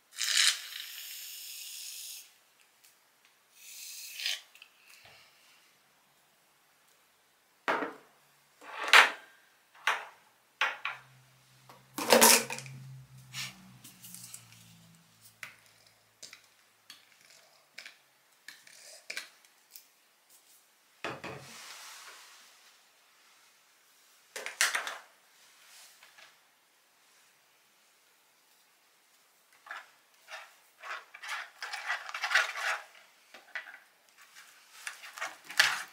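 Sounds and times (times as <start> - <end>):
utensil scraping: 29.6 - 35.9.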